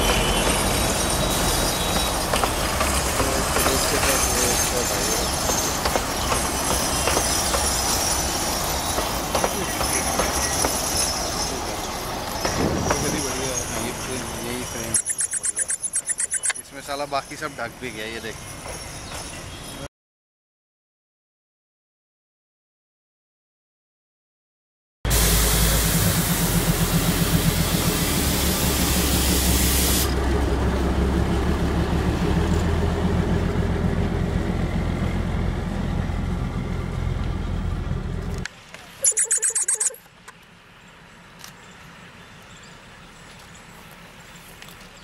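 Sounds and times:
diesel locomotive engine running: 0.0 - 19.8, 25.1 - 45.0
loud hiss: 25.1 - 30.2.

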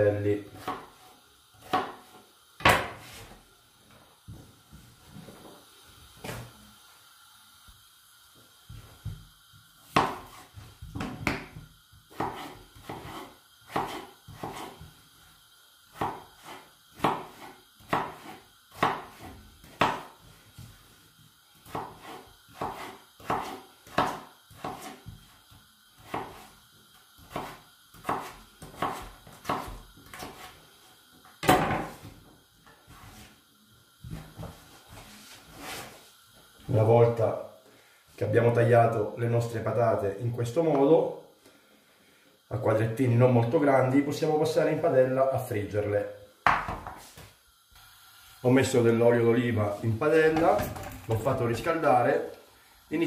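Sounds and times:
knife chopping on wooden board: 0.5 - 0.9, 1.6 - 3.2, 9.9 - 14.8, 16.0 - 20.1, 21.6 - 25.2, 26.0 - 26.4, 27.2 - 30.5, 46.4 - 47.0.

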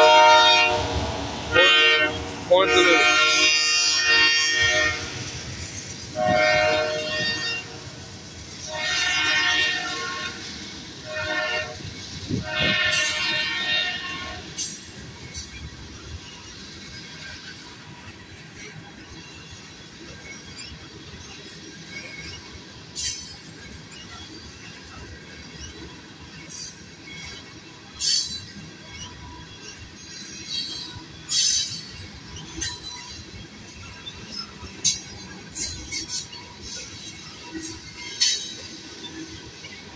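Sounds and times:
locomotive air horn blasts: 0.0 - 5.3, 6.2 - 7.9, 8.7 - 10.4, 11.0 - 14.5
train cars rumbling on rails: 0.0 - 39.9.

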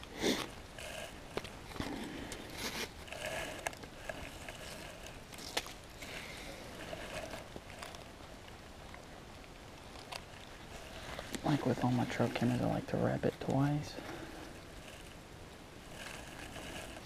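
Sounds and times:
buckle clicks and scrapes: 0.3 - 8.1, 9.8 - 12.7, 15.8 - 17.0.

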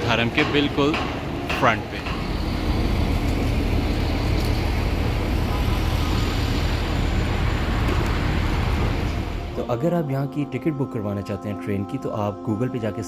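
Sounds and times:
bus engine idling: 0.0 - 9.9
street traffic: 0.0 - 12.1.

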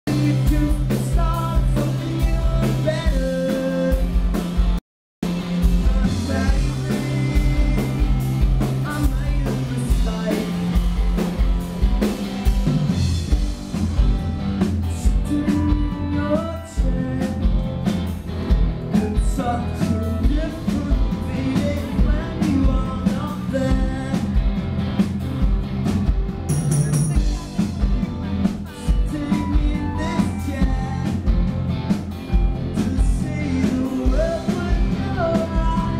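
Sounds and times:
lead vocal singing: 0.1 - 4.1, 5.5 - 10.8, 14.9 - 17.8, 18.9 - 24.6, 28.6 - 31.6, 32.6 - 35.9
live rock band playing: 0.1 - 35.9.

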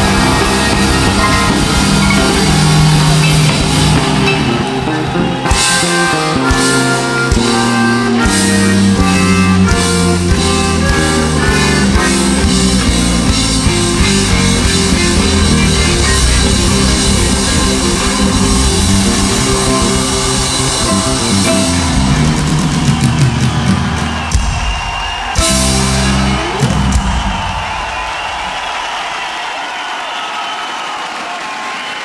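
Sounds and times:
button accordion chords: 0.0 - 24.0
bass guitar: 0.0 - 28.2
drum kit: 0.0 - 29.6.

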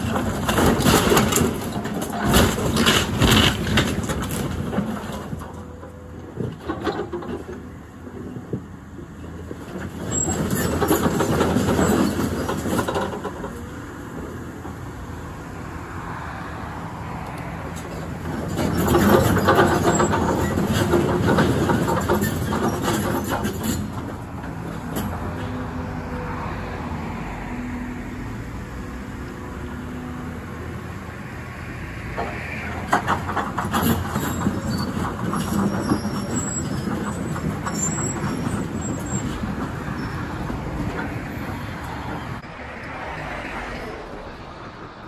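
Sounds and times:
excavator diesel engine under load: 0.0 - 45.0
metallic clanking and rattling: 17.8 - 24.2.

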